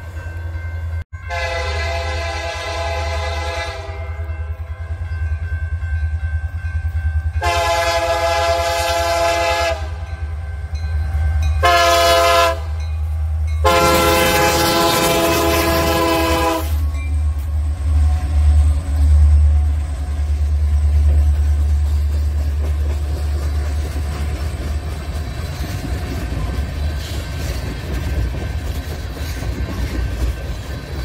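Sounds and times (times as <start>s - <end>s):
locomotive air horn blasts: 1.2s - 4.5s, 7.4s - 10.4s, 11.6s - 12.8s, 13.6s - 17.4s.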